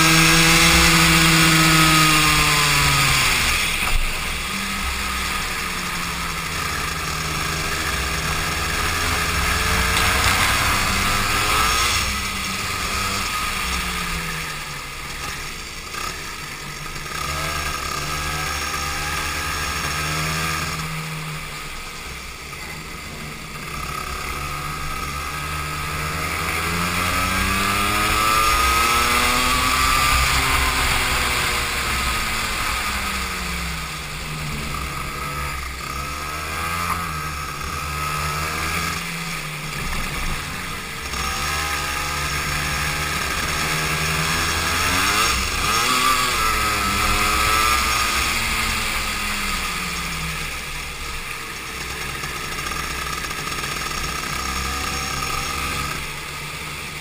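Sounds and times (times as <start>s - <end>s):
go-kart engine accelerating: 0.0s - 57.0s.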